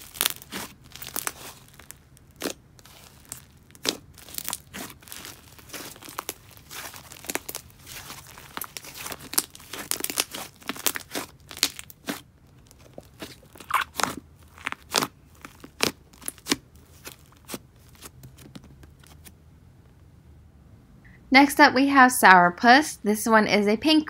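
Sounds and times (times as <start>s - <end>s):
slime popping and crackling: 0.0s - 19.1s.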